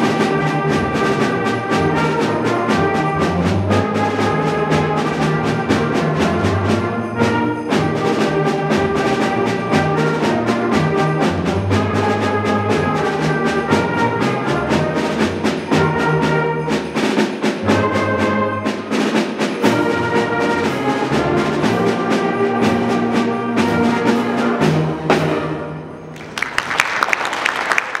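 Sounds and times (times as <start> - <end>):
steady drum beat: 0.0 - 25.8
concert band playing: 0.0 - 26.5
applause: 26.1 - 28.0.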